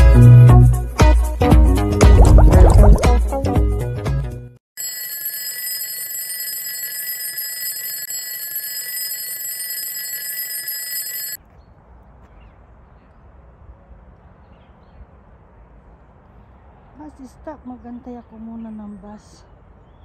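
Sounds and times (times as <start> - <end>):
upbeat intro music: 1.9 - 3.4
alarm clock bell ringing: 4.8 - 11.4
faint outdoor background: 11.4 - 20.0.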